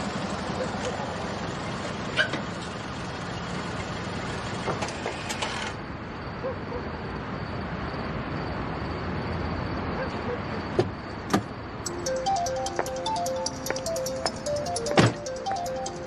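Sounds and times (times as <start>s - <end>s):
car engine and tyre noise: 0.0s - 11.9s.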